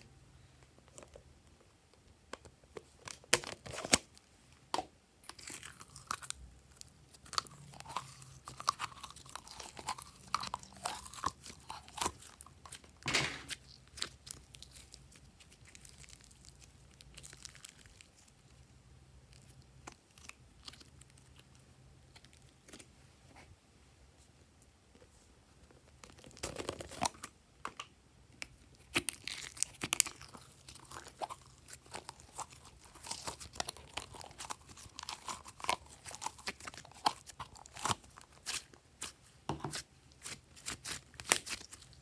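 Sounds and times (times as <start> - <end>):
slime squelching and popping: 28.4 - 41.9.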